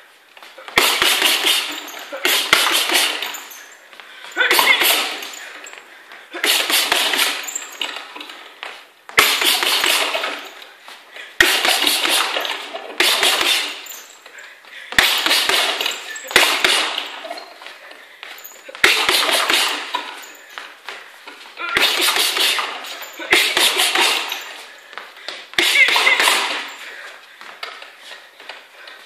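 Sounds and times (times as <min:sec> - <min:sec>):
boxing gloves hitting a ball: 0:00.6 - 0:03.5, 0:06.3 - 0:10.5, 0:11.4 - 0:14.0, 0:14.9 - 0:17.5, 0:18.3 - 0:21.0, 0:21.6 - 0:24.4, 0:25.3 - 0:26.8.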